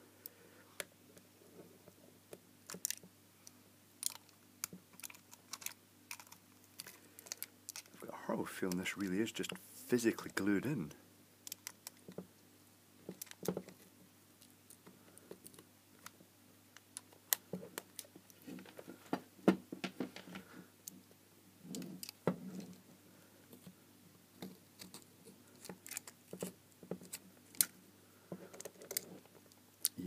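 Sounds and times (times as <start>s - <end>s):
metal pick clicking and scraping: 4.0s - 8.0s, 24.4s - 27.8s, 28.5s - 29.2s.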